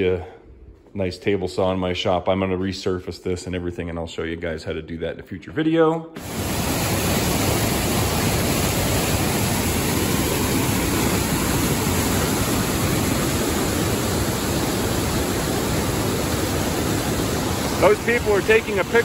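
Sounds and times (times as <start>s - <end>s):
stream rushing over boulders: 6.2s - 19.0s.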